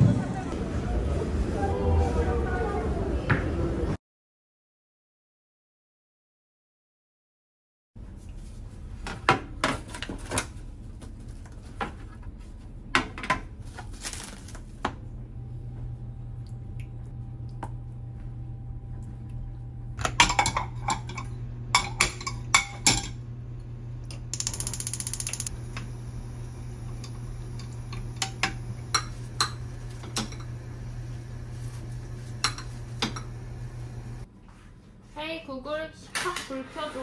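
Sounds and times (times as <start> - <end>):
steady low hum: 14.9 - 34.6
cookware and utensils clinking: 20.0 - 23.2, 26.9 - 30.6, 32.2 - 33.5, 36.1 - 37.0.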